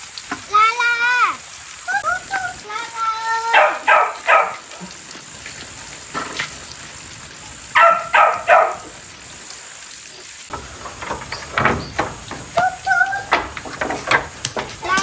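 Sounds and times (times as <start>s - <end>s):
light rain pattering: 0.0s - 15.0s
dog barking: 3.5s - 4.8s, 7.8s - 8.9s.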